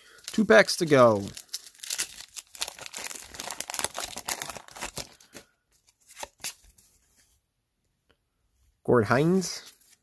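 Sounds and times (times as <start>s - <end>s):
paper wrapper crinkling and tearing: 0.1s - 6.7s
cards clicking and rustling: 1.2s - 6.7s.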